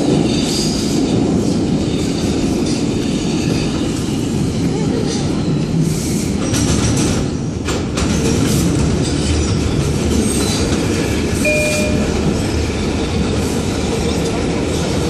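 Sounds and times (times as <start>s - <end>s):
subway wheels rumbling on rail: 0.0s - 15.0s
brief high tone: 11.5s - 12.5s.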